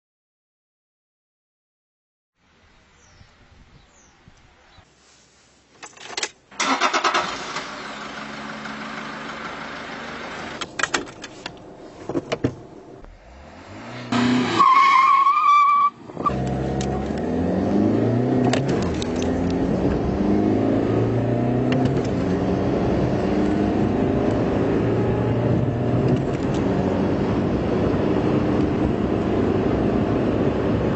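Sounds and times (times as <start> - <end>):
diesel engine idling and accelerating: 6.6 - 30.9.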